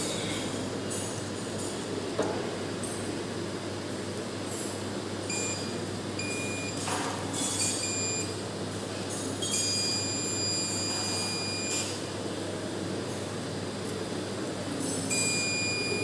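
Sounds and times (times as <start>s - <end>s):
multimeter continuity beeps: 5.3s - 6.8s, 7.6s - 8.3s, 9.5s - 12.0s, 15.1s - 16.0s.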